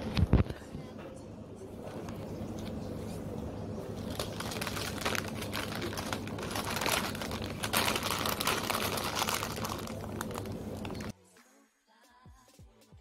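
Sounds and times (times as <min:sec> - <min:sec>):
low hum: 0:00.0 - 0:11.1
paper wrapper crinkling: 0:03.8 - 0:11.1.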